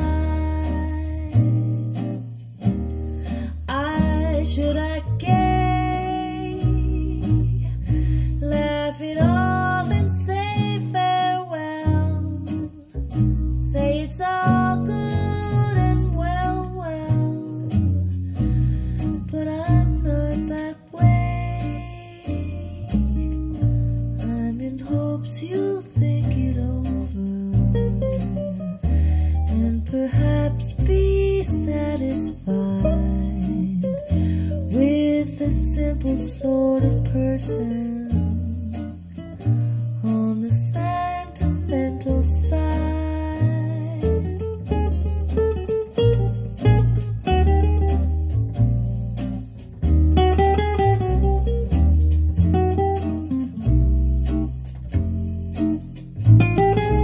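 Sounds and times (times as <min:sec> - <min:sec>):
person singing: 0:00.0 - 0:01.6, 0:03.5 - 0:12.9, 0:40.0 - 0:44.4
bass line: 0:00.0 - 0:57.0
plucked acoustic guitar: 0:00.0 - 0:57.0.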